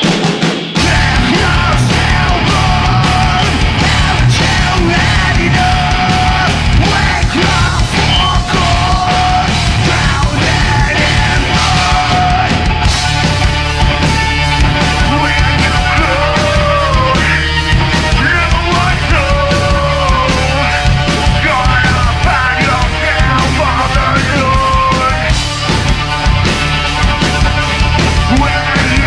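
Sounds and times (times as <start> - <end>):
vocalist singing and shouting: 0.0 - 26.6, 27.2 - 29.0
heavy rock band playing: 0.0 - 29.0.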